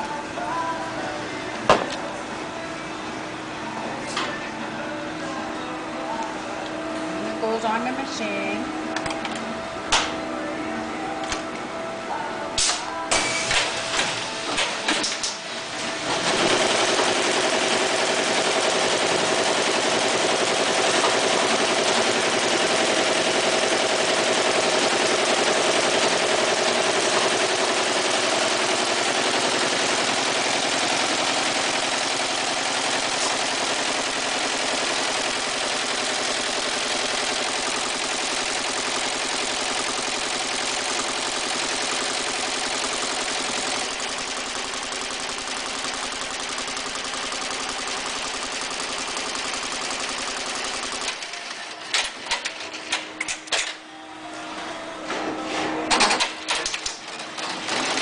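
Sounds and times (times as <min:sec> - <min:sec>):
embroidery machine running: 0:13.0 - 0:52.6
machine clicks and knocks: 0:55.9 - 0:58.0.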